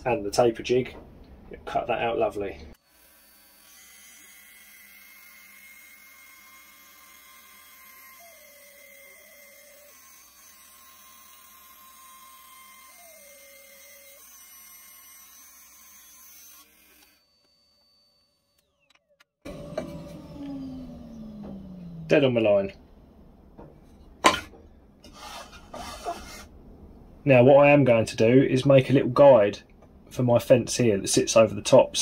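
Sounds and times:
bandsaw cutting wood: 0:02.8 - 0:17.4, 0:18.6 - 0:22.5, 0:25.0 - 0:26.5.

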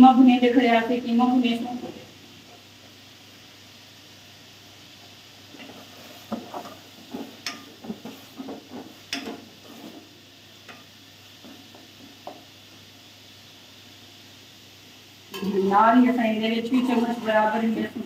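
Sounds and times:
faint sizzle of frying: 0:00.0 - 0:18.0
wooden spatula scraping a pot: 0:05.5 - 0:10.2, 0:16.7 - 0:18.0.

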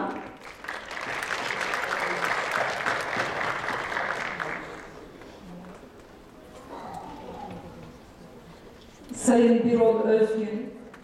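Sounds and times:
audience applauding: 0:00.1 - 0:05.3.

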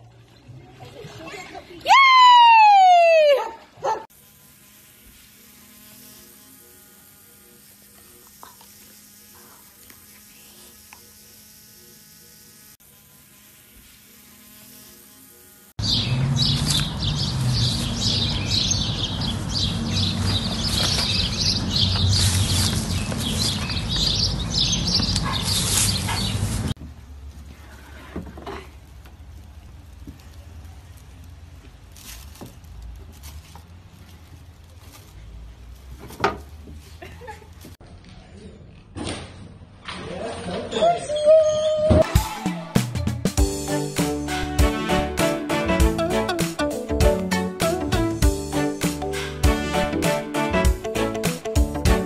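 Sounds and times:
motor-like hum: 0:03.7 - 0:25.8
tissue paper rustle: 0:31.8 - 0:35.9.

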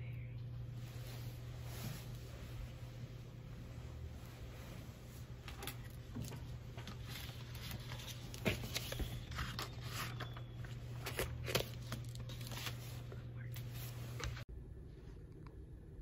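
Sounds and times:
low hum: 0:00.0 - 0:16.0
paper and plastic folder rustling: 0:05.1 - 0:14.4.

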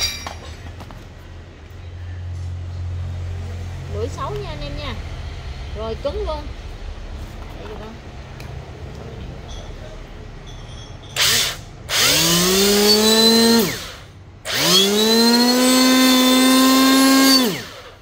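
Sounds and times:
electric hand planer whining: 0:11.2 - 0:18.0.

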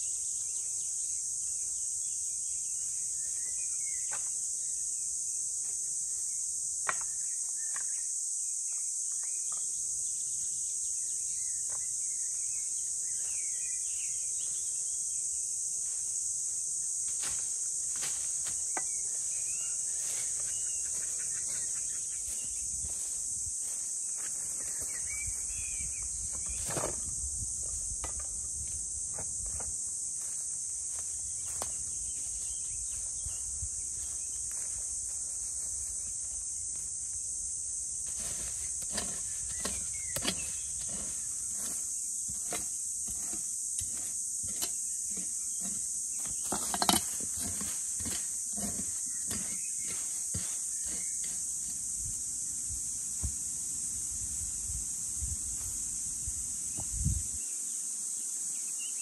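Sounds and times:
high-pitched insect buzz: 0:00.0 - 0:59.0
shovel digging into soil: 0:38.0 - 0:51.9.

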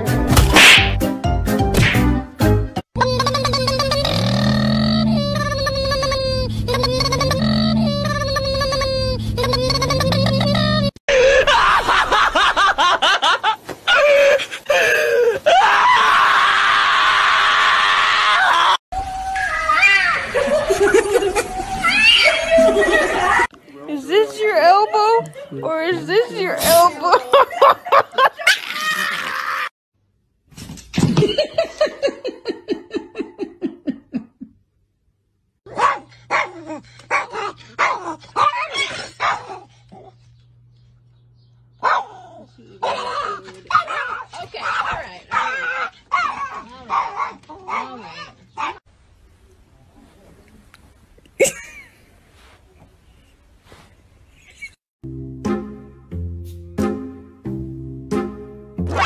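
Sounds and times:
loud scream-like wail: 0:15.5 - 0:20.4
small dog barking and yelping: 0:35.7 - 0:40.2, 0:41.8 - 0:48.8.

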